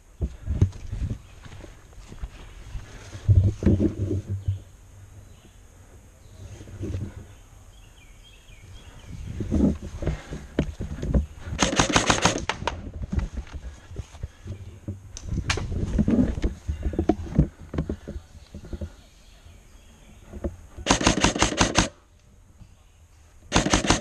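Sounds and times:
low thumps from movement: 2.8s - 4.8s, 9.0s - 19.0s
airsoft rifle shots: 11.6s - 12.8s, 20.8s - 22.0s, 23.5s - 24.0s.

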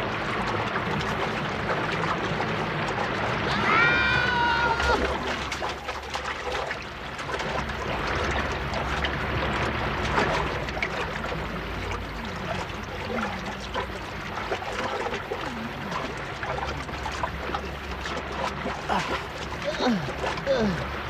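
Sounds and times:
cartoon underwater bubbling: 0.8s - 21.0s.

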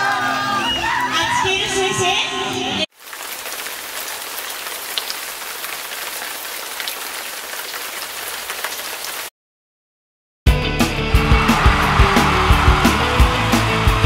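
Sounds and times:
heavy rain hissing: 11.6s - 14.0s.

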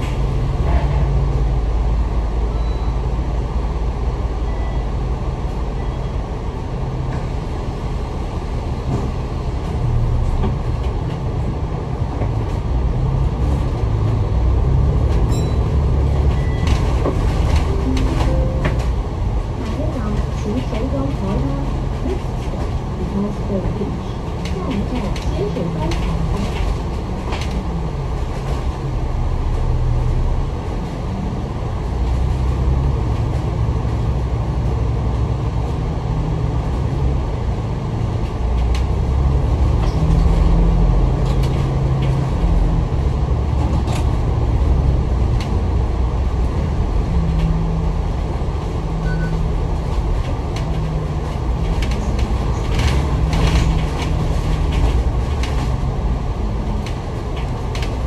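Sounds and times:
bus engine drone: 0.0s - 58.0s
rattles and clicks: 15.0s - 28.8s, 49.7s - 58.0s.

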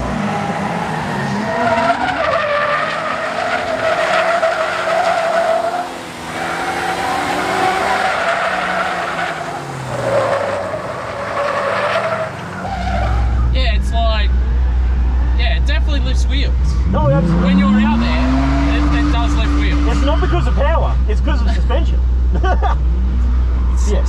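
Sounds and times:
tyres squealing: 0.4s - 13.6s
engine revving: 14.3s - 21.5s.

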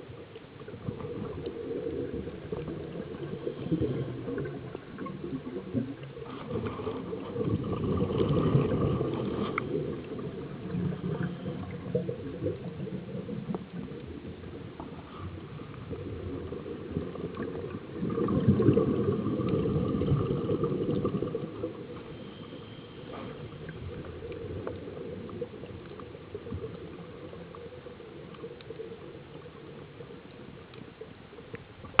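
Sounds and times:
underwater breathing noise: 21.8s - 24.1s.

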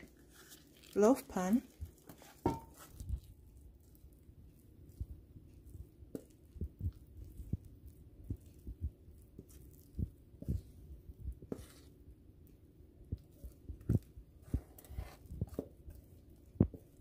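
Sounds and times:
wooden spoon scraping batter: 0.0s - 17.0s
batter plopping into pan: 2.0s - 3.0s.

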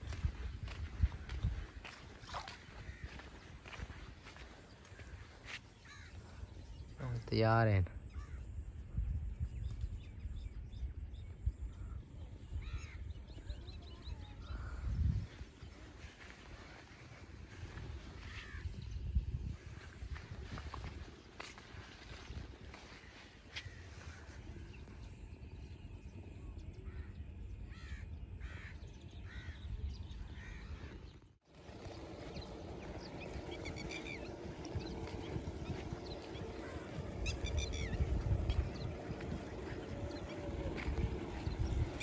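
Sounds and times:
wind rumble on microphone: 0.0s - 7.0s, 7.9s - 42.0s
bird calls and chirps: 0.0s - 42.0s
crow cawing: 2.6s - 4.4s, 5.8s - 6.2s, 27.7s - 29.6s
steady low rumble: 31.5s - 42.0s.

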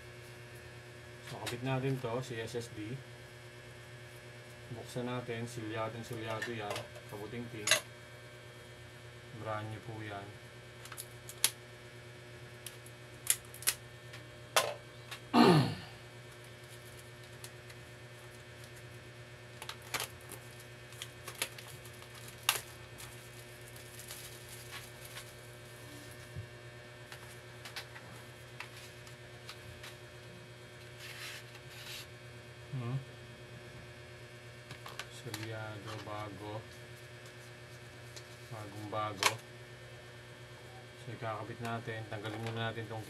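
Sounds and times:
mains hum: 0.0s - 43.0s
packaging clicks and rustling: 19.6s - 25.3s.

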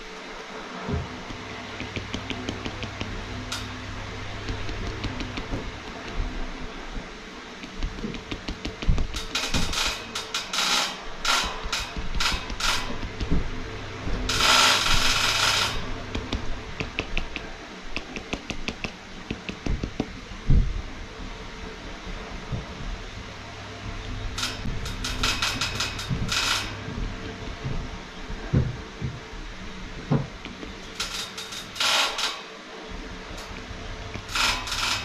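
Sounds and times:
cotton swabs dabbing on board: 4.4s - 6.3s.

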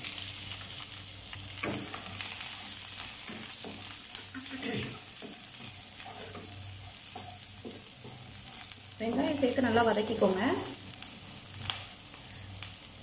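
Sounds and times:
onions sizzling in oil: 0.0s - 13.0s
spatula scraping and tapping pan: 3.2s - 9.4s.

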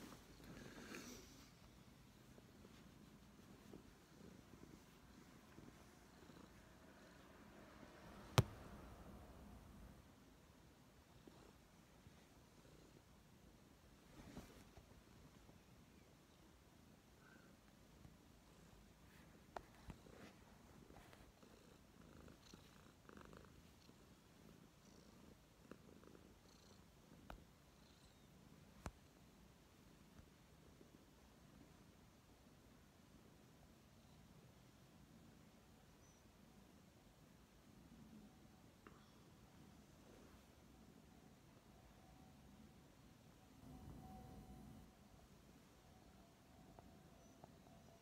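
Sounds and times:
cat purring: 0.0s - 29.4s.

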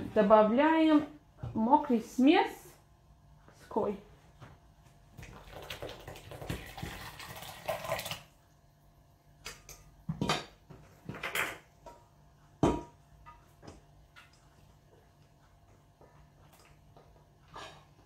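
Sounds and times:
batter pouring into bowl: 5.2s - 8.3s.

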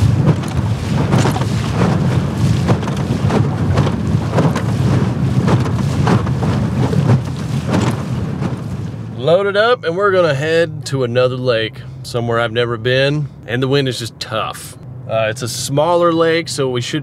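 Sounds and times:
wind buffeting microphone: 0.0s - 9.2s
hull slapping against waves: 0.0s - 9.3s
outboard motor droning: 0.0s - 17.0s.

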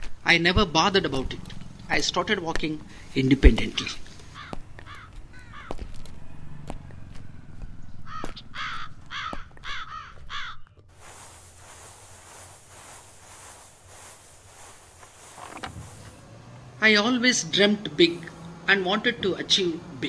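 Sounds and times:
crow cawing: 4.2s - 5.8s, 8.0s - 10.6s
steady hiss: 11.0s - 16.2s.

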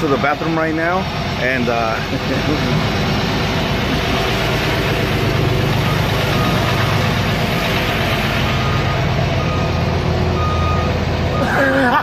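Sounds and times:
diesel truck engine idling: 0.0s - 12.0s
reversing alarm beeping: 2.6s - 11.7s.

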